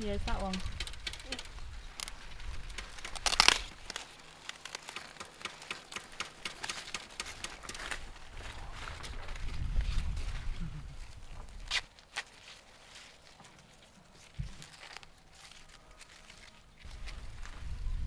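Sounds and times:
maize leaves rustling: 0.0 - 18.0
crackling tear: 0.5 - 8.0.

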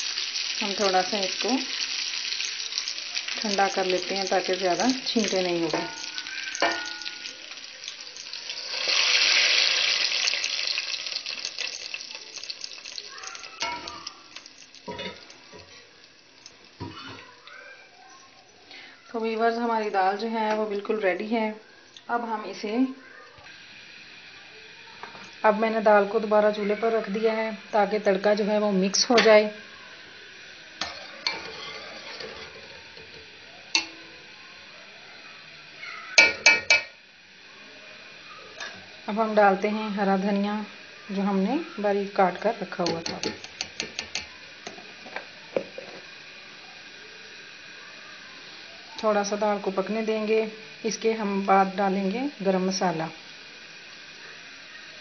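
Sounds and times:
hot oil sizzling: 0.0 - 55.0
metal spoon stirring in pot: 2.0 - 17.3, 30.8 - 34.0, 42.3 - 44.8
spoon knocking against pot: 5.7 - 7.4, 36.2 - 37.0, 42.8 - 44.8.

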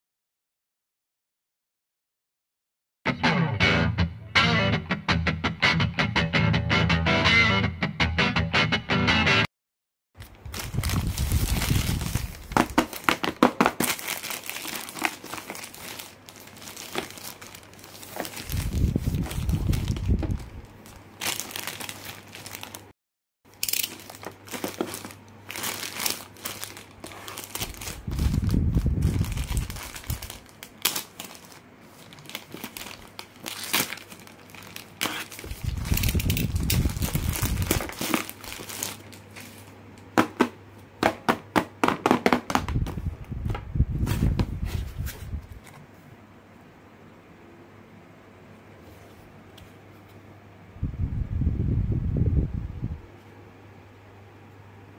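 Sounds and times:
plastic mailer bag crinkling: 10.2 - 22.9, 23.5 - 39.8.

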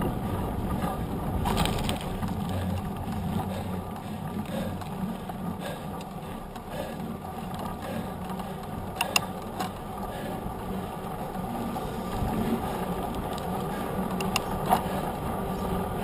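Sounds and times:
bike tyre rumbling on asphalt: 0.0 - 16.0
sharp rattling clicks: 7.5 - 9.9, 12.1 - 15.7.

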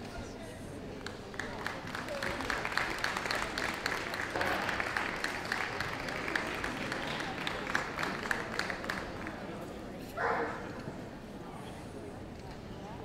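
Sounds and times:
audience applauding: 1.0 - 9.5.

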